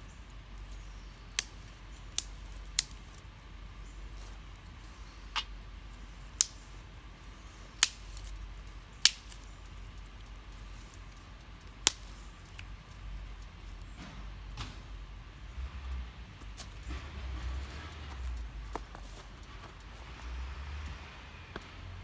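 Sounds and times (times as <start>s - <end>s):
wood fire cracking: 0.0s - 21.0s.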